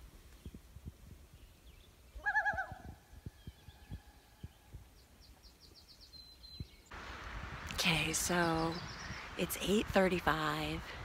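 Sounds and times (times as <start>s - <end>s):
songbird trill: 1.3s - 6.9s, 8.2s - 9.9s
loon calling: 2.2s - 3.0s.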